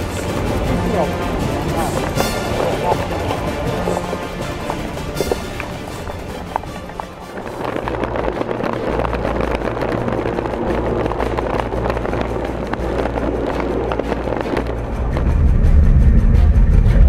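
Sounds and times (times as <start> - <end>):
background music with beat and bass: 0.0 - 7.4.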